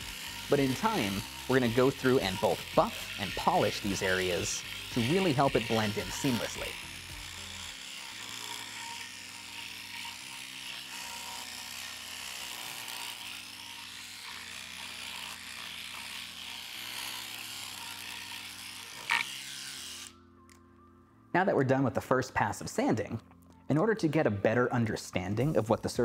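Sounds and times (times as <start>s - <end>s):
pen sander buzzing: 0.0s - 20.2s.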